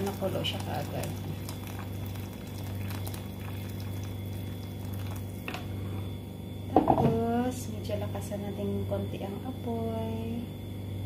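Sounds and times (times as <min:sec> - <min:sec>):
water pouring into a pot: 0:00.0 - 0:06.0
liquid bubbling and splashing: 0:00.0 - 0:06.2
steady low hum: 0:00.0 - 0:11.0.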